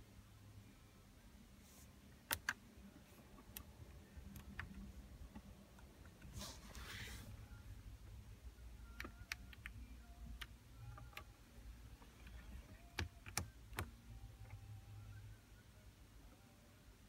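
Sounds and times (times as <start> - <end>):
keypad button clicks: 2.2 - 2.6, 8.8 - 9.8.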